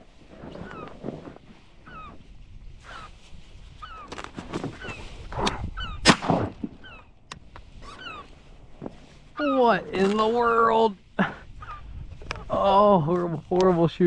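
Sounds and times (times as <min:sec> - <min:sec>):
birds whistling falling notes: 0:00.4 - 0:02.2, 0:03.8 - 0:07.2, 0:07.8 - 0:08.3.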